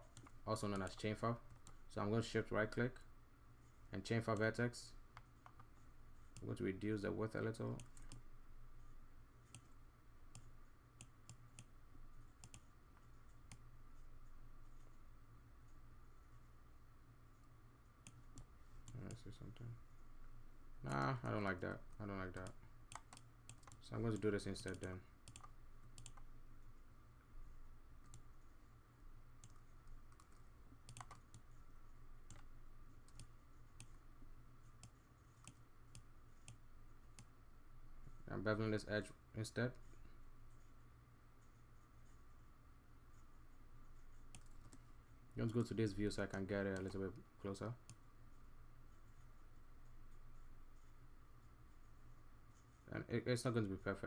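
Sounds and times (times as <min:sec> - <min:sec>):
low steady hum: 0:00.0 - 0:54.0
mouse and keyboard clicks: 0:29.4 - 0:31.5.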